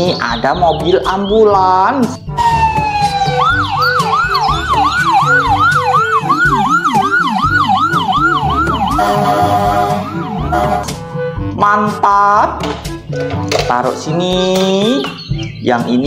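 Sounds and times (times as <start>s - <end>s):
background music: 0.0s - 16.0s
electronic ambulance siren: 2.3s - 11.2s.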